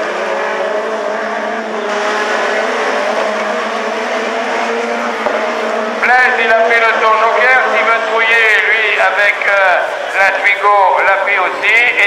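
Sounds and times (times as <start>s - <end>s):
racing car engines: 0.0s - 12.0s.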